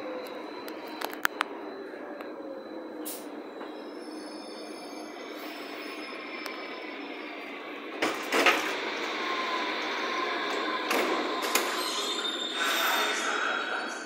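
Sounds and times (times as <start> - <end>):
train carriage rumble: 0.0 - 14.0
train doors clunking: 7.4 - 13.0.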